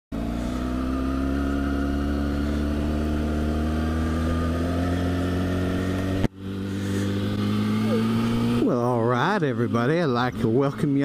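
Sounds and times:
motorcycle engine cruising: 0.1s - 11.0s.

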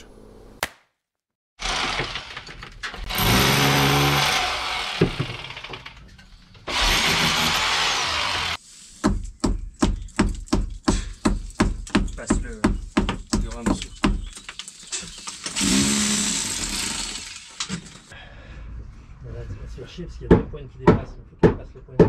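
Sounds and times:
handheld power tool motor: 3.0s - 6.0s, 6.7s - 8.6s, 15.1s - 18.1s.

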